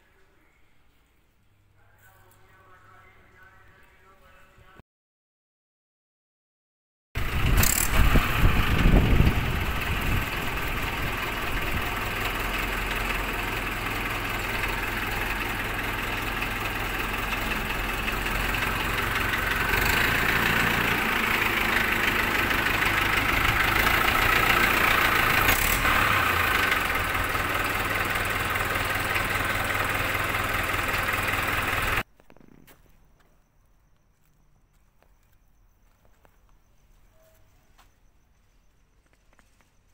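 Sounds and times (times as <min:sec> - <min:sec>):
tractor diesel engine idling: 0:07.2 - 0:32.1.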